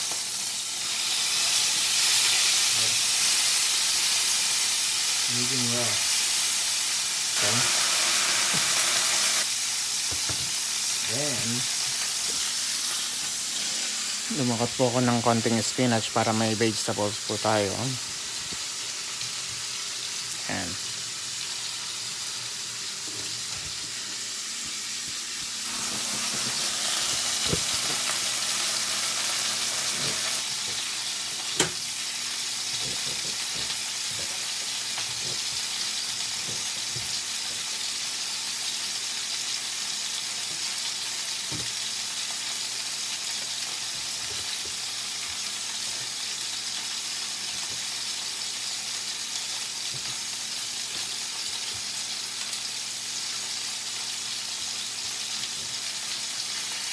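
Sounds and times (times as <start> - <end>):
steak sizzling in a skillet: 0.0 - 56.9
kitchen tap running: 7.4 - 9.4, 24.6 - 31.8.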